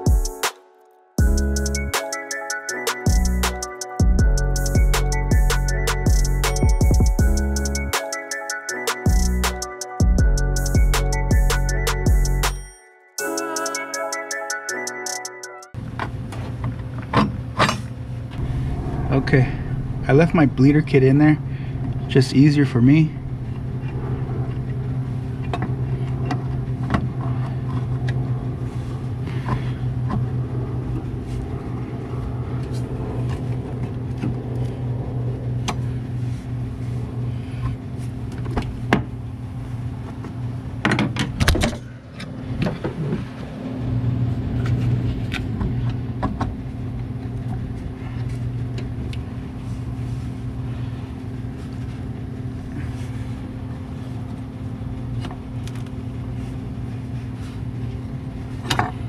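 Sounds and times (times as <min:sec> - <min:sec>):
low motor hum: 0:18.1 - 0:40.8.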